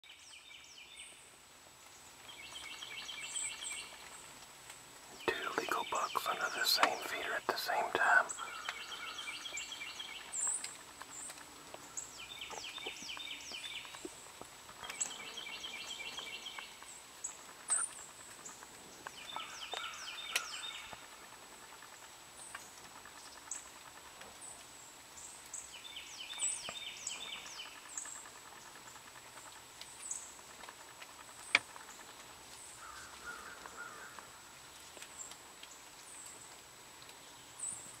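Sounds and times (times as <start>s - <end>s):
songbirds trilling: 5.1s - 24.6s, 25.2s - 30.5s, 31.3s - 35.3s.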